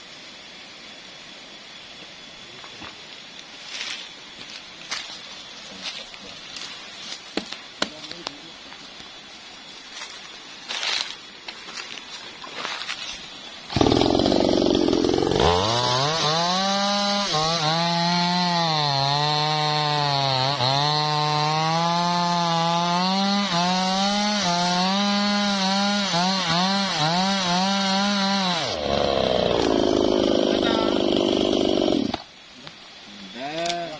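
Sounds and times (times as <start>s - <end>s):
chainsaw cutting log: 13.7s - 32.3s.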